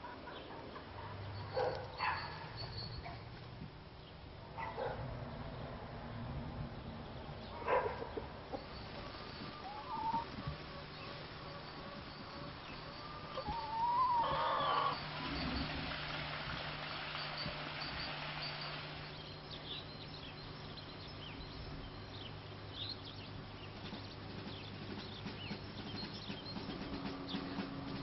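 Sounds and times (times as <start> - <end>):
chickens clucking and calling: 7.6 - 19.2.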